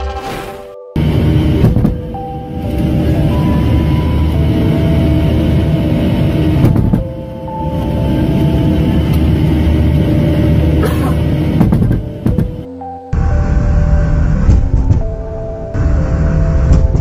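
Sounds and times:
jet engine rumbling and whining: 1.0 - 17.0.

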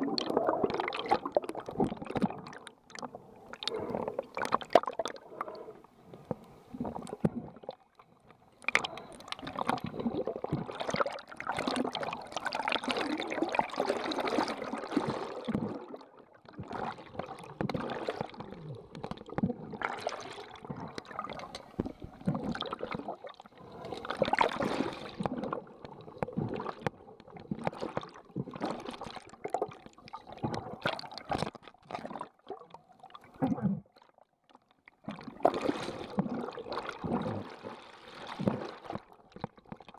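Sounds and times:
muffled underwater bubbling and sloshing: 0.0 - 39.9.

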